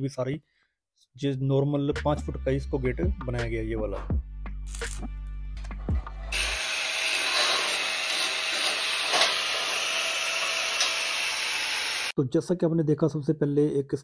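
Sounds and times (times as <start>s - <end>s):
welding and grinding crackle: 4.7s - 5.1s, 6.4s - 12.1s.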